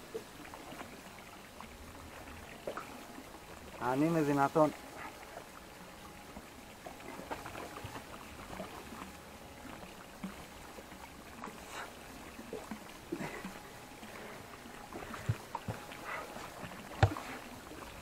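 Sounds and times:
water lapping against a boat: 0:00.0 - 0:18.0
light knocks and rustles: 0:15.0 - 0:17.5.

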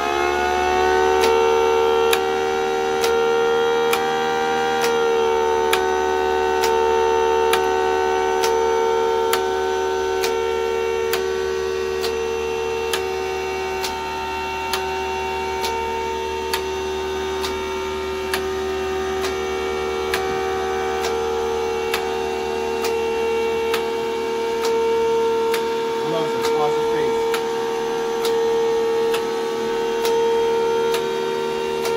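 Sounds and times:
air pump humming: 0:00.0 - 0:31.9
siren steady tone: 0:00.0 - 0:31.9
solenoids clicking: 0:02.9 - 0:04.2, 0:04.8 - 0:09.6, 0:11.1 - 0:11.3, 0:12.9 - 0:15.0, 0:16.5 - 0:16.8, 0:17.4 - 0:18.6, 0:20.0 - 0:30.3, 0:30.9 - 0:31.9.

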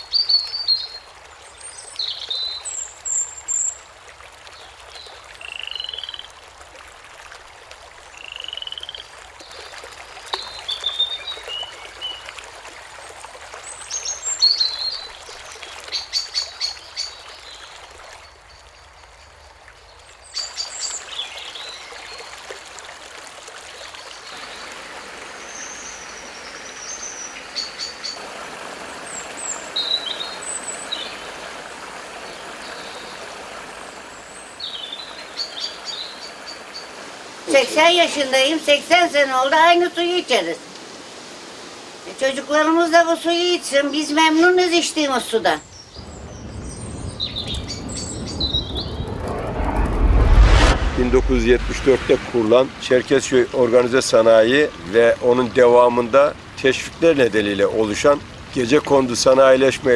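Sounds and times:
running water hiss: 0:00.0 - 0:59.9
frogs calling: 0:05.4 - 0:06.4, 0:08.1 - 0:09.2
birds chirping: 0:24.0 - 0:28.2, 0:28.8 - 0:31.5, 0:43.6 - 0:59.9.

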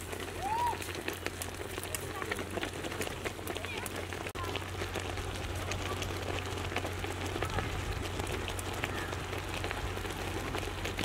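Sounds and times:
rice cooking with fizzing crackle: 0:00.0 - 0:11.0.

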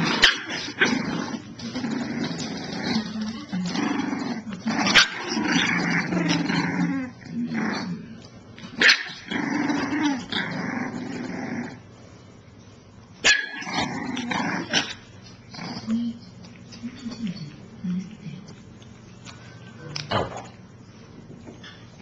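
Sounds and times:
puppies growling: 0:00.0 - 0:12.1, 0:13.3 - 0:19.4.

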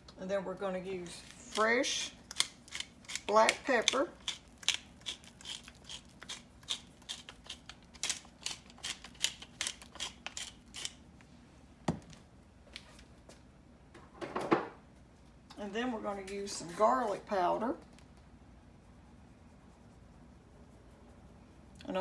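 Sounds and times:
pepper mill grinding clicks: 0:02.3 - 0:11.0.

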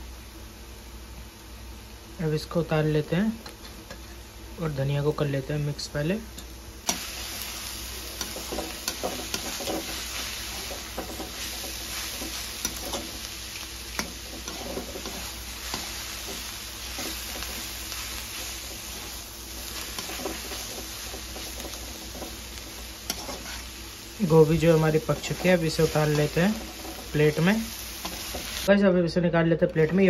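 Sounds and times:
food sizzling: 0:00.0 - 0:28.8
metal spatula scraping a pan: 0:08.1 - 0:13.3, 0:13.9 - 0:23.8, 0:25.1 - 0:27.3.

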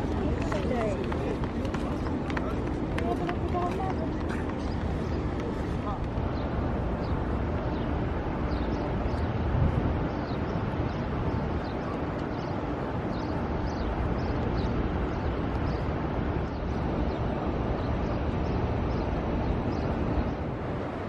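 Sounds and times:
crowd noise: 0:00.0 - 0:07.1
traffic rumble: 0:00.0 - 0:21.0.

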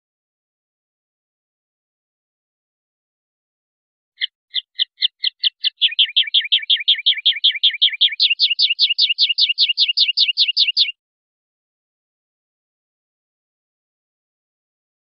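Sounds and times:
linnet singing: 0:04.2 - 0:11.0.

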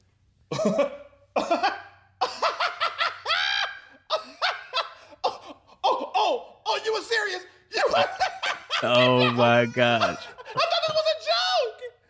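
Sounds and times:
person laughing: 0:00.5 - 0:06.4, 0:07.8 - 0:11.2.

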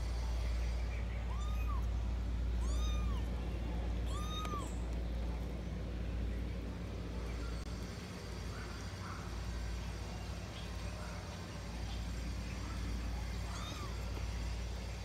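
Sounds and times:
cat meowing: 0:01.3 - 0:01.9, 0:02.6 - 0:03.3, 0:04.0 - 0:04.8, 0:13.4 - 0:14.2.

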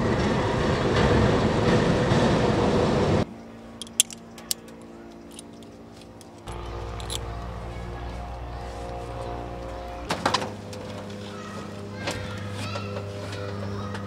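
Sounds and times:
metal buckles clicking: 0:03.8 - 0:07.3.

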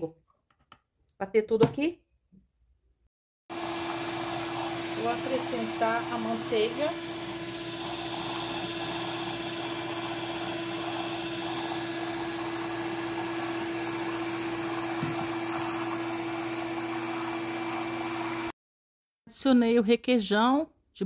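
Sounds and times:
stand mixer motor whisking: 0:03.5 - 0:18.5.

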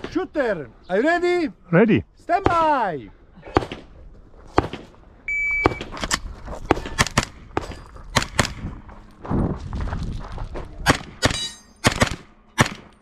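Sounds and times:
shot timer beep: 0:05.3 - 0:05.9.

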